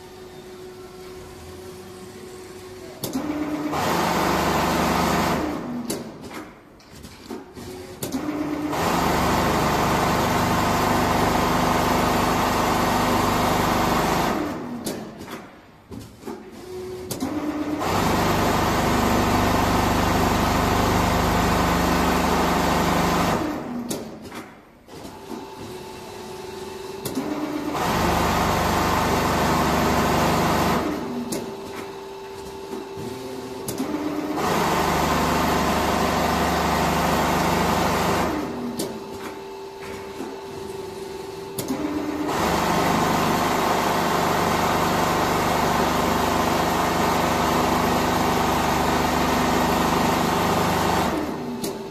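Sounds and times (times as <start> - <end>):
sewing machine stitching: 2.9 - 6.4, 7.1 - 15.3, 16.4 - 24.2, 26.9 - 31.7, 32.7 - 39.0, 41.6 - 51.9.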